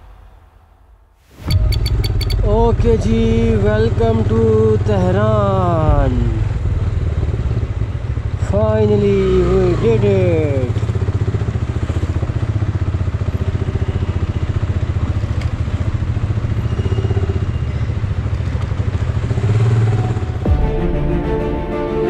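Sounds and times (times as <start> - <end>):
motorcycle engine running: 1.5 - 20.6
background music: 20.2 - 22.0.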